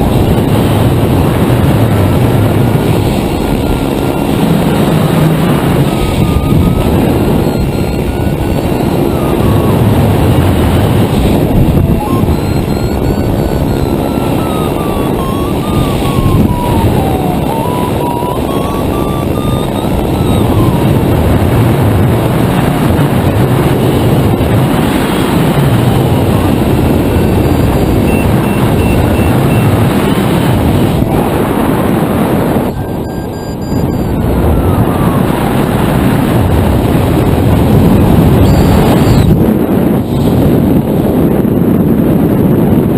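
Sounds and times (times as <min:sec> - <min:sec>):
wind buffeting microphone: 0:00.0 - 0:42.9
faint wavering tone: 0:03.5 - 0:21.4.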